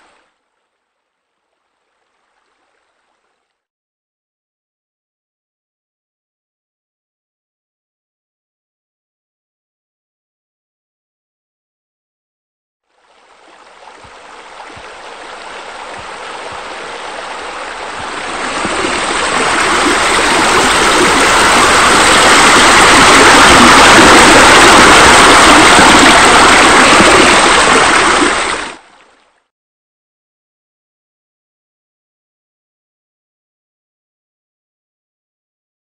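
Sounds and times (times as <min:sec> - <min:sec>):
rushing splashing water: 0:13.1 - 0:29.3.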